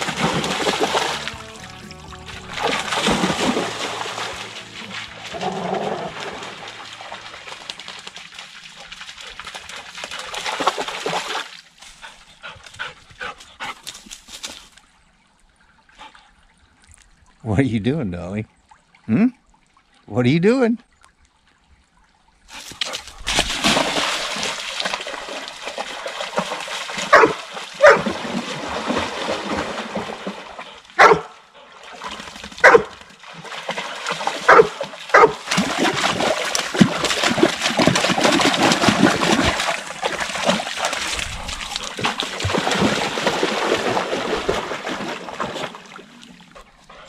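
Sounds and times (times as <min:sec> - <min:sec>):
dogs splashing through water: 0:00.0 - 0:14.7, 0:22.5 - 0:47.0
dog barking: 0:27.1 - 0:28.1, 0:31.0 - 0:31.4, 0:32.6 - 0:33.0, 0:34.5 - 0:35.4.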